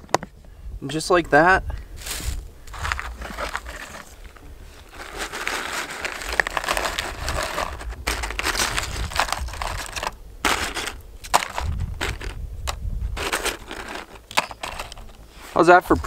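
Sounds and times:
tortilla chips rustling and crackling: 2.0s - 12.4s, 13.1s - 15.2s.

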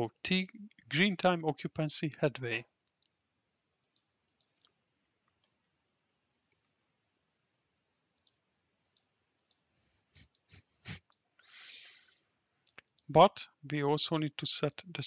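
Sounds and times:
computer mouse clicks: 2.8s - 5.8s, 6.5s - 6.9s, 8.2s - 11.2s, 12.6s - 13.1s.

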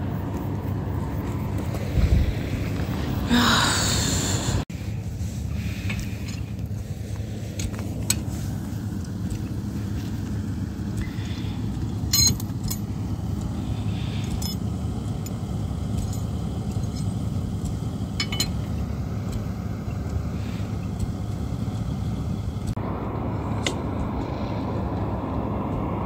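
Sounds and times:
low rumble: 0.0s - 26.0s
metal tools clinking: 11.9s - 12.9s, 18.2s - 18.7s.

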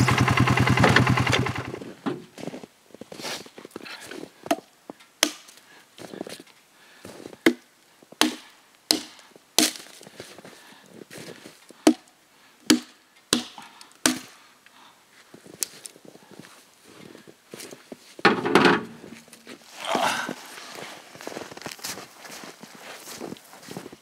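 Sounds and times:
axe chopping log: 5.2s - 5.5s, 7.4s - 7.6s, 8.2s - 9.9s, 11.8s - 12.1s, 12.7s - 14.3s.

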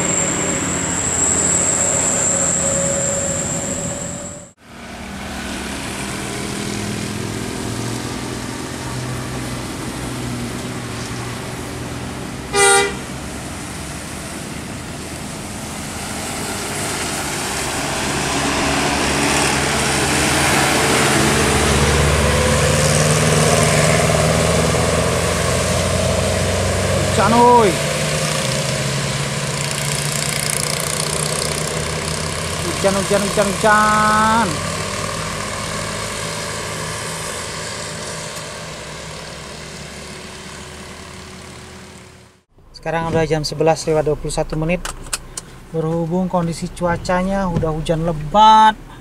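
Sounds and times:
diesel engine pulling uphill: 0.0s - 49.0s
tyres hissing on wet road: 4.7s - 42.3s.

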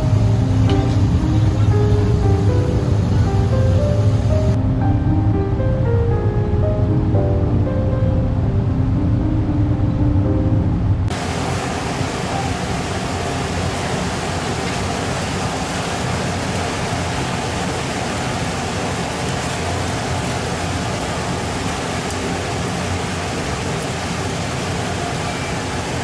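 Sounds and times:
music: 0.0s - 11.1s.

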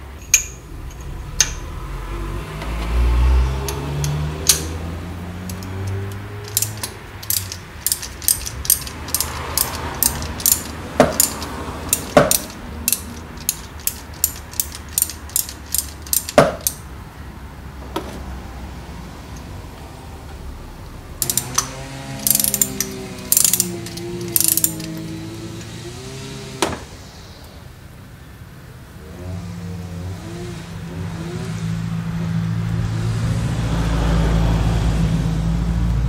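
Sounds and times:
low rising hum: 0.0s - 7.2s
ratchet wrench clicking: 3.6s - 4.8s, 5.4s - 16.8s, 21.2s - 25.6s
metal knocks: 3.6s - 16.8s.

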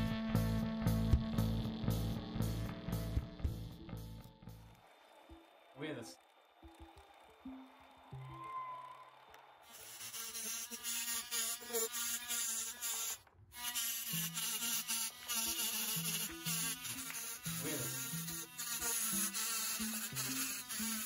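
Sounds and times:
rotary tool grinding stone: 9.6s - 21.0s.

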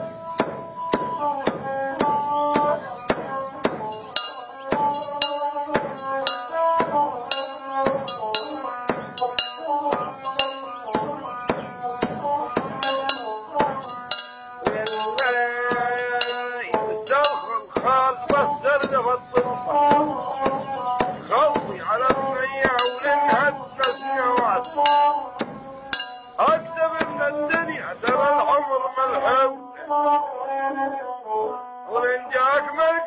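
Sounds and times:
metal pestle striking brass mortar: 3.1s - 19.6s, 20.5s - 28.3s.

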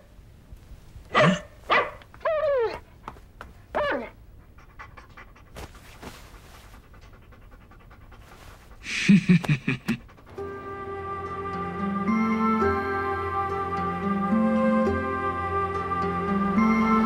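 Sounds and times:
dog whining: 1.1s - 3.1s, 3.7s - 6.0s
dog panting: 2.8s - 10.5s
faint sniffing: 4.4s - 10.4s
soft music: 10.2s - 17.0s.

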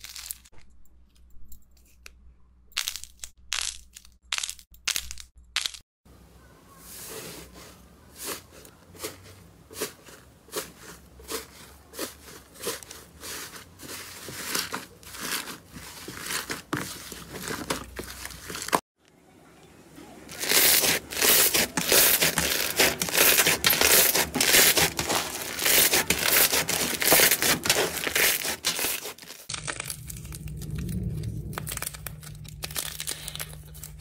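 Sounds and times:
slime squishing: 20.3s - 34.0s.

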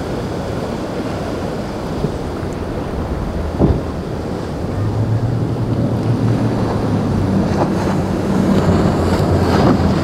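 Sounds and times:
boat engine drone: 0.0s - 10.0s
splashing spray and waves: 0.0s - 10.0s
wind buffeting microphone: 0.0s - 10.0s
brief thump: 3.6s - 3.9s.

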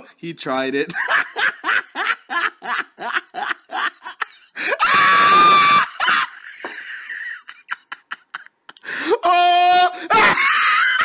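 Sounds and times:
person laughing: 0.9s - 4.8s, 5.9s - 9.5s
high-pitched scream: 4.8s - 6.3s.

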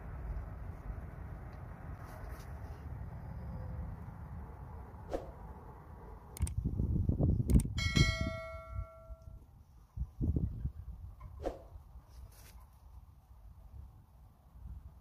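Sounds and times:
low rumbling noise: 0.0s - 9.3s
sharp clicks: 6.3s - 6.6s, 7.4s - 7.8s
bell ding: 7.8s - 9.4s.

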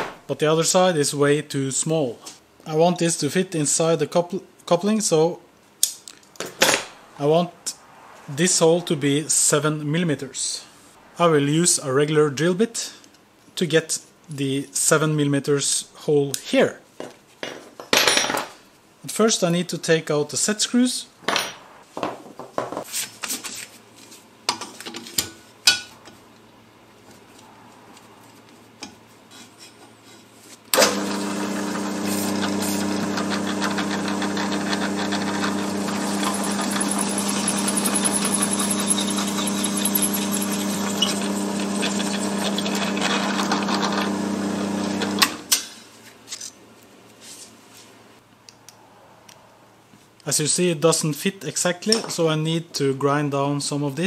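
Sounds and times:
electric drill drilling: 30.8s - 45.4s.

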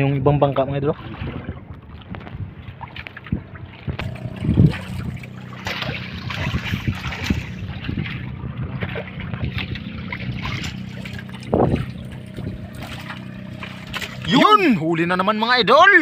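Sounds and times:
water lapping and splashing: 0.0s - 15.8s
boat engine running: 0.7s - 16.0s.

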